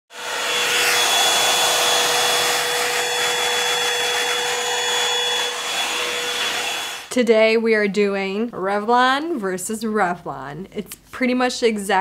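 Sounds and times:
hair dryer brush running: 0:00.1 - 0:07.1.

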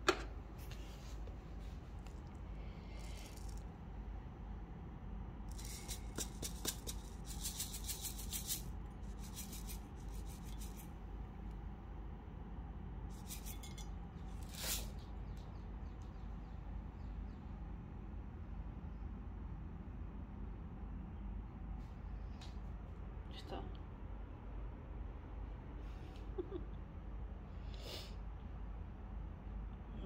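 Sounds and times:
fish food rattling in plastic jar: 0:05.5 - 0:10.9.

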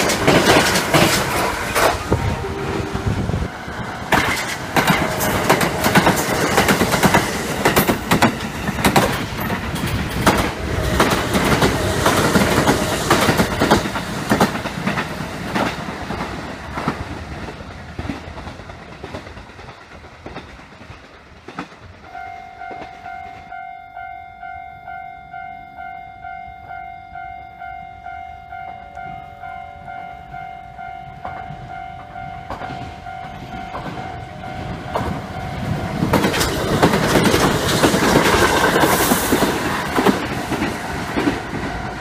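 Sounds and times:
electric train wheels clattering: 0:00.0 - 0:23.7, 0:27.8 - 0:42.0
level-crossing bell ringing: 0:22.1 - 0:35.9.

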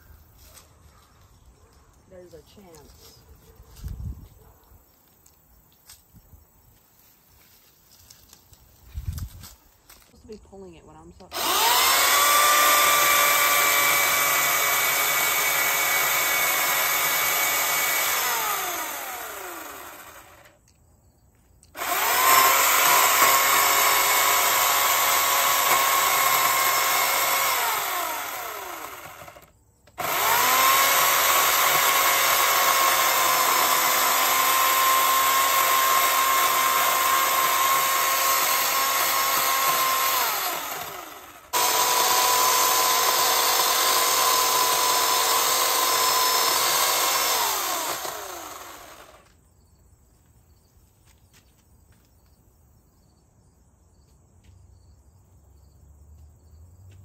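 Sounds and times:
electric chainsaw cutting wood: 0:11.2 - 0:20.6, 0:21.7 - 0:49.4.

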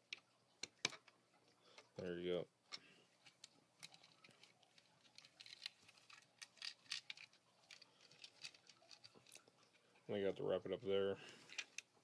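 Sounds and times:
plastic toy parts clicking: 0:02.7 - 0:09.4, 0:11.4 - 0:11.9.

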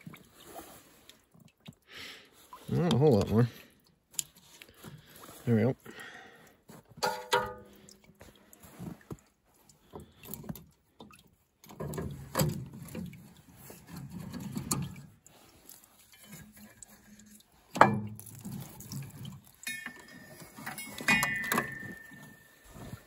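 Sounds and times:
clunks rustling and scraping: 0:11.6 - 0:23.0.

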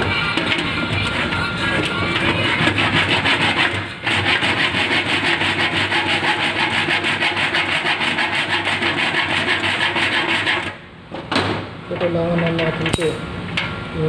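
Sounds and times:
hand scraping rusty sheet metal: 0:00.0 - 0:10.8.

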